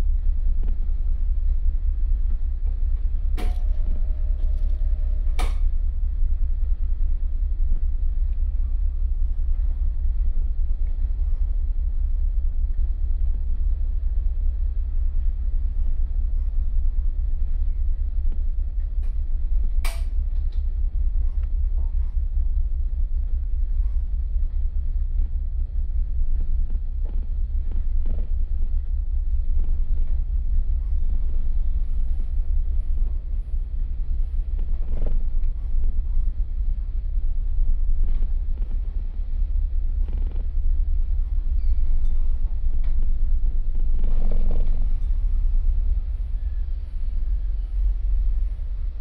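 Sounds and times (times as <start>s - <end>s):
ferry engines humming: 0.0s - 49.0s
wind buffeting microphone: 0.0s - 49.0s
sharp click: 5.4s - 5.6s, 19.8s - 20.2s.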